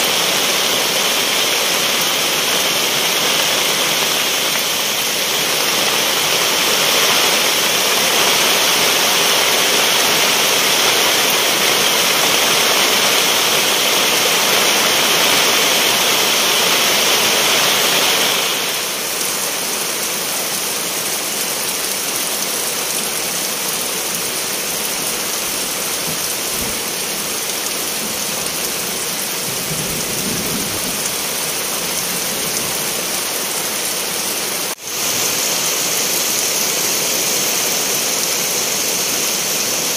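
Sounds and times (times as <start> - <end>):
steady rain hiss: 0.0 - 39.9.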